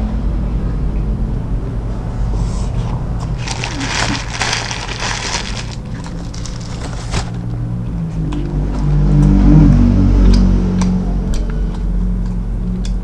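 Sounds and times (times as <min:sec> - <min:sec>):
crunchy burger being chewed: 0:03.2 - 0:07.4.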